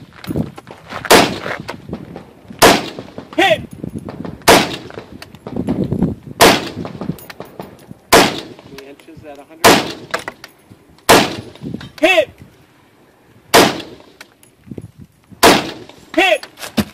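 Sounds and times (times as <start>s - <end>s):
rifle shots: 1.1s - 1.4s, 2.6s - 3.4s, 4.2s - 5.1s, 6.4s - 8.8s, 9.6s - 10.3s, 11.1s - 11.6s, 13.5s - 14.2s, 15.4s - 16.0s.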